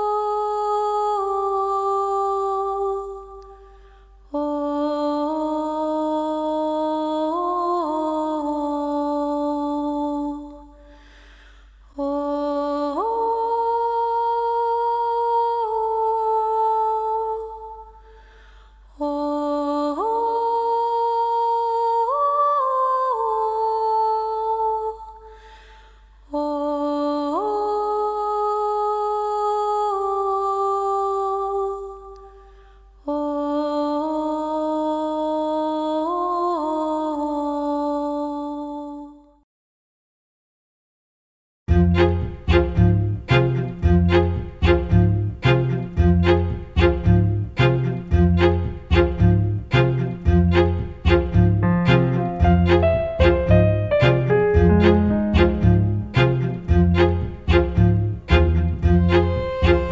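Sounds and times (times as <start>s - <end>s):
person humming long notes: 51.6s - 56.7s.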